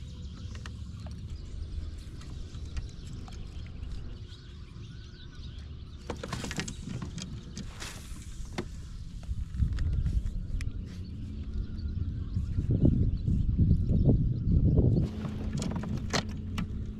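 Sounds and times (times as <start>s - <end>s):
steady low rumble: 0.0s - 6.1s, 6.7s - 16.9s.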